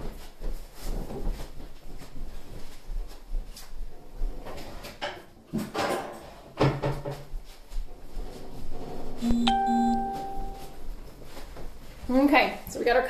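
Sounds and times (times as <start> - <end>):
cupboards and drawers clattering: 4.4 - 7.3.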